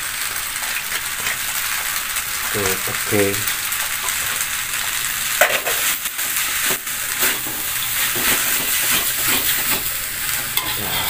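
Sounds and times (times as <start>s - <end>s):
noodles sizzling in a wok: 0.0s - 11.0s
metal spatula scraping a wok: 7.1s - 11.0s.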